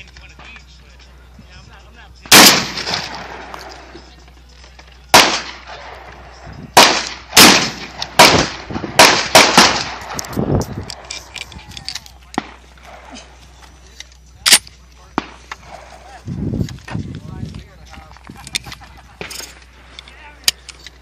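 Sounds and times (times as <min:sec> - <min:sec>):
shotgun shots: 0:02.2 - 0:03.8, 0:05.1 - 0:06.2, 0:06.8 - 0:10.3.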